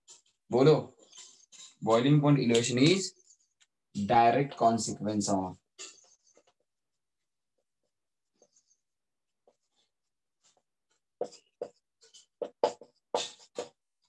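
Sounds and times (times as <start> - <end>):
pen writing strokes: 7.8 - 14.0.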